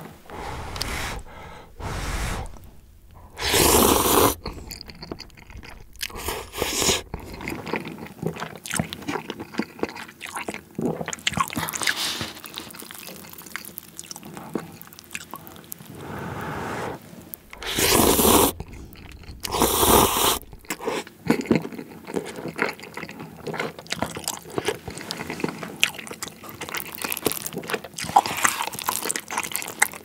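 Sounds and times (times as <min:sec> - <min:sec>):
noodle slurp: 0:00.0 - 0:08.8, 0:15.8 - 0:21.0
wet chewing with smacks: 0:03.1 - 0:15.9, 0:17.3 - 0:30.0.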